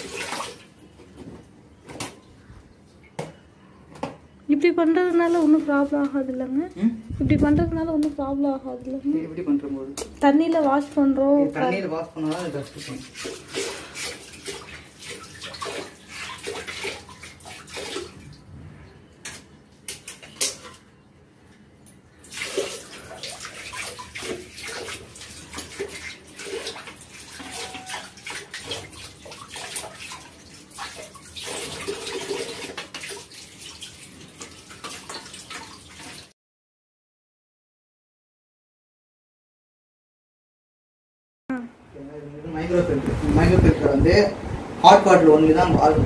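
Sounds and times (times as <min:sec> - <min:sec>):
tap water splashing into basin: 0:12.2 - 0:18.2, 0:22.2 - 0:36.3.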